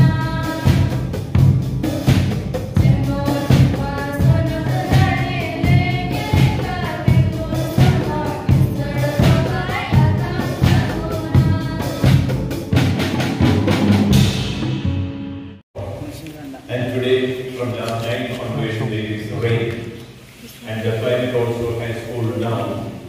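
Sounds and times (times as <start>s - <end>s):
steady drum beat: 0.0s - 15.4s
voices singing a hymn: 2.8s - 12.2s.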